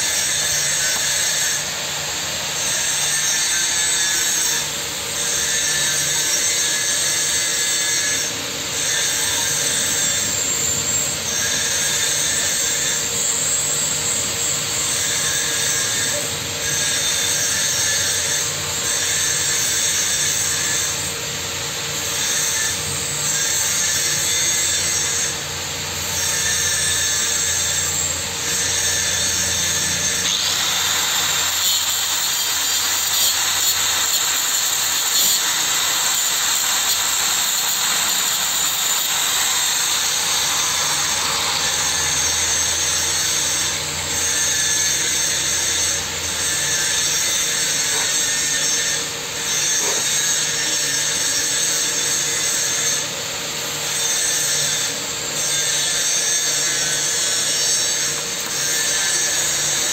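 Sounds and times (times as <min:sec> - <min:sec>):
power tool running with hiss: 0:00.0 - 0:59.9.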